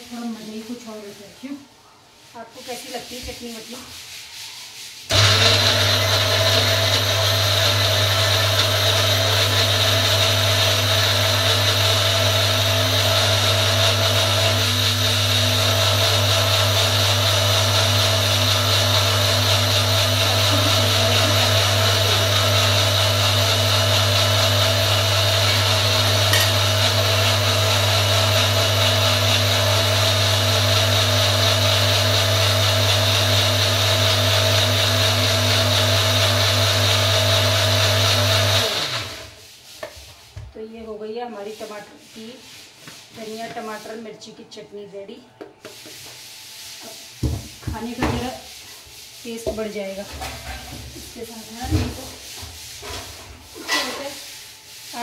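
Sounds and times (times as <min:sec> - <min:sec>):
blender motor whining: 0:05.1 - 0:39.3.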